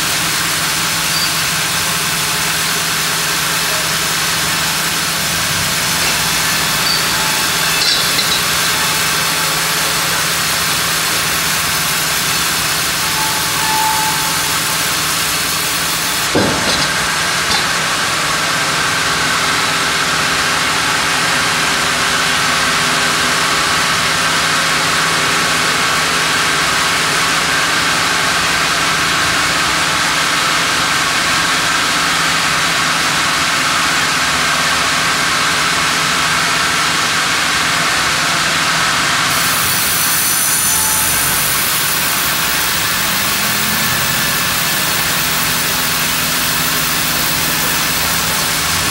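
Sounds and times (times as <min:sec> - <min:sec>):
band saw cutting log: 0:00.2 - 0:18.8, 0:39.3 - 0:48.9
machinery whirring: 0:00.4 - 0:19.8, 0:39.4 - 0:48.9.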